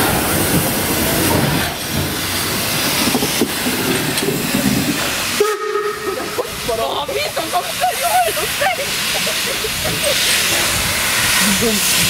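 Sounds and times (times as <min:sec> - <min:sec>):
steam locomotive passing: 0:00.0 - 0:12.0
steam whistle: 0:05.4 - 0:06.2.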